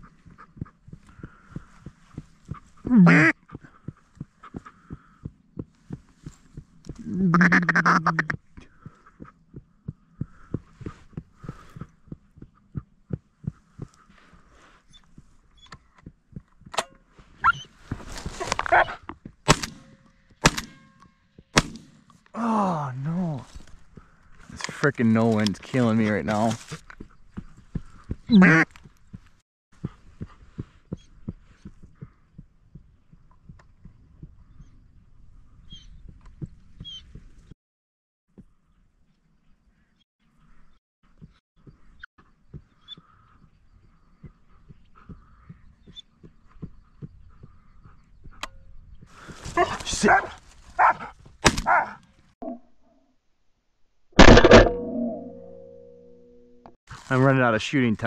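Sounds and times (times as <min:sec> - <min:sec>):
ducks calling: 0:02.5 - 0:05.3, 0:07.2 - 0:09.4, 0:27.8 - 0:28.7.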